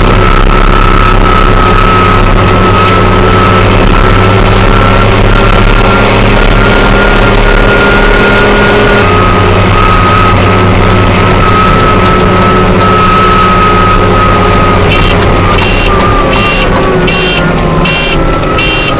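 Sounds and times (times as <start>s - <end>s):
steady high whine: 0.0s - 18.9s
tractor diesel engine running: 0.0s - 18.9s.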